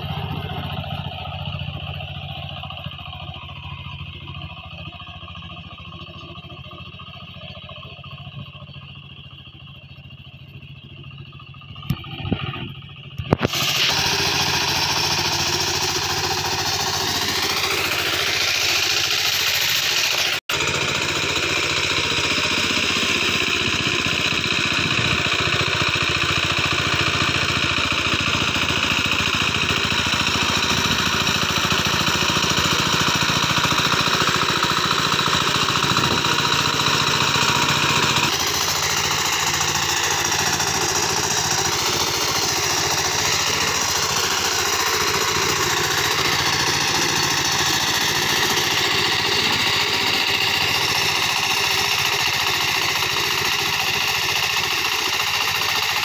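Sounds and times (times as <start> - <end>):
hand tractor engine chugging: 0.0 - 56.0.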